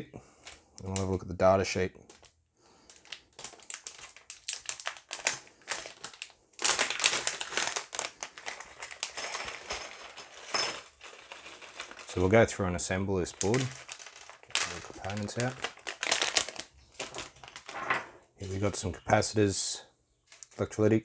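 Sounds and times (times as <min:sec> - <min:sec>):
plastic bag crinkling: 0:02.1 - 0:12.4, 0:13.2 - 0:18.8.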